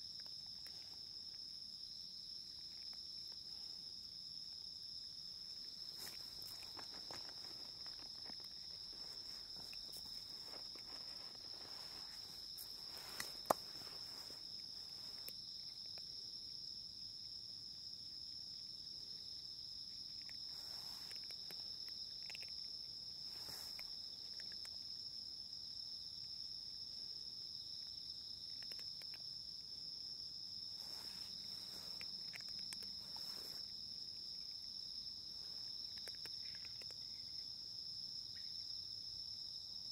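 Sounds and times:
high insect chirring: 0.0s - 38.7s
faint rustles: 5.6s - 15.3s, 30.7s - 33.8s.

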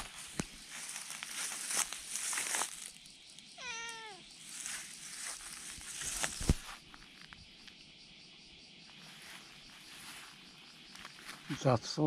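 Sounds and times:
rustling: 0.0s - 3.0s, 3.8s - 7.4s
cat meowing: 3.6s - 4.3s.

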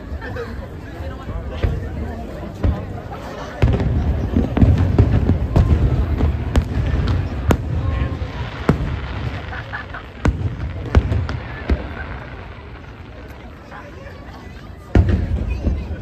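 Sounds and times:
firework shells bursting: 3.6s - 13.7s.

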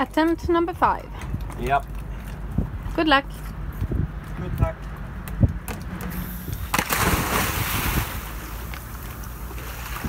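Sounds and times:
splash into water: 6.6s - 8.5s.

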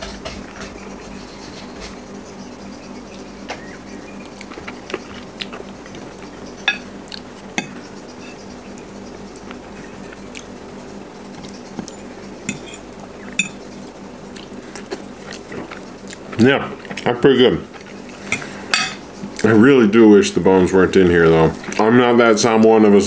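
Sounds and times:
low steady hum: 0.0s - 23.0s
fork scraping ceramic plate: 12.0s - 13.6s.

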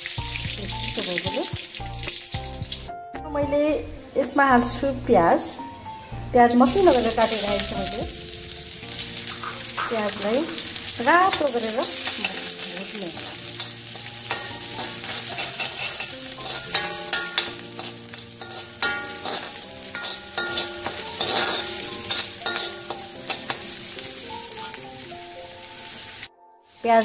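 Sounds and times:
onions sizzling in oil: 0.0s - 3.0s, 4.1s - 27.0s
metal spoon scraping pan: 13.1s - 23.7s.

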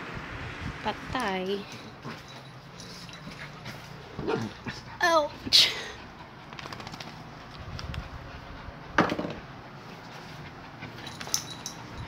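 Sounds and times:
small dogs scuffling: 6.4s - 8.2s.

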